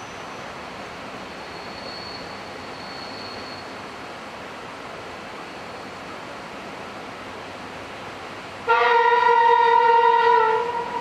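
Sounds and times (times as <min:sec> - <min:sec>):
hiss of approaching train: 0:00.0 - 0:11.0
train horn blast: 0:08.7 - 0:11.0.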